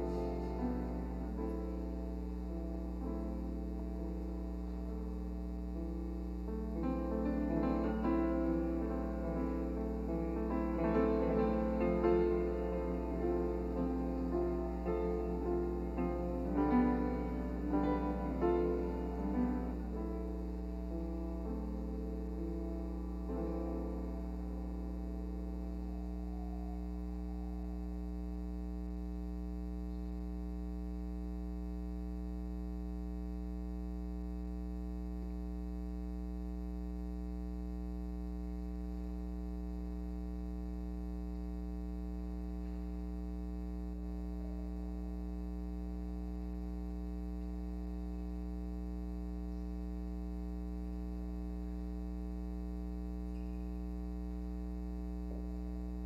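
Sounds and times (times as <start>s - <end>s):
piano notes: 0.0s - 27.9s
electrical mains hum: 0.0s - 56.0s.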